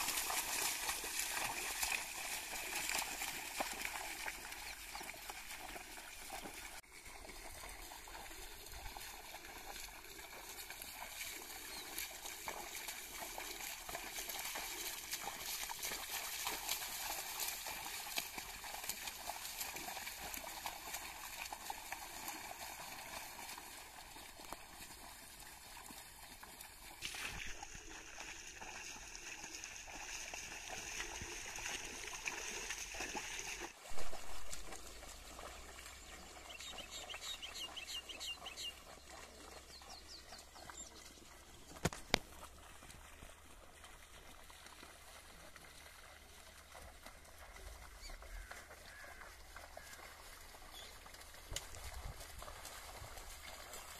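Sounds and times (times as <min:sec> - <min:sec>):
bullocks sloshing through water: 0:00.0 - 0:53.9
splashing and trickling water: 0:00.0 - 0:53.9.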